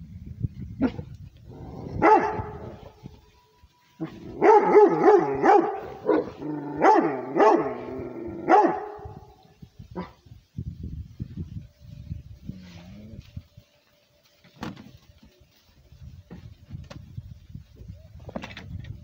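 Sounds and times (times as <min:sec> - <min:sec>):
dog barking loudly: 0:02.0 - 0:02.6, 0:04.4 - 0:09.1.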